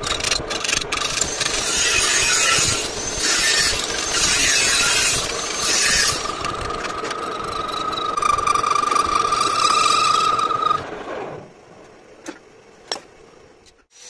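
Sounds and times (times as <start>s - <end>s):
metal lathe cutting metal: 0.9s - 10.8s.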